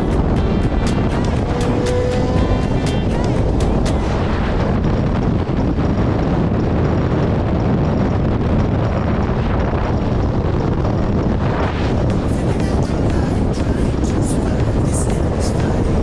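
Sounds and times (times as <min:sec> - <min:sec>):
motorcycle engine drone: 0:00.0 - 0:16.0
wind buffeting microphone: 0:00.0 - 0:16.0.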